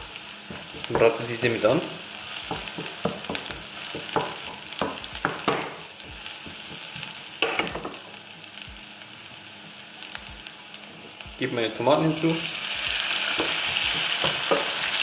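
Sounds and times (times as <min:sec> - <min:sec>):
vegetables sizzling in oil: 0:00.0 - 0:15.0.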